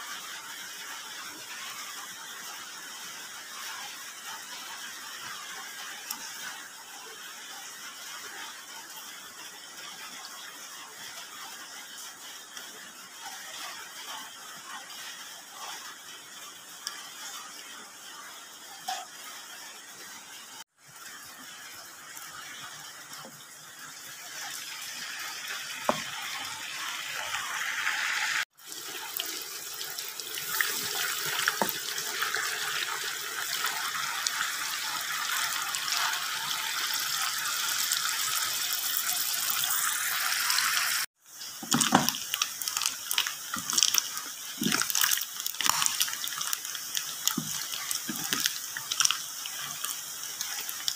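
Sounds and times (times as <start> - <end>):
fish frying in hot oil: 0.0 - 50.9
spatula knocking and scraping wok: 25.8 - 26.4.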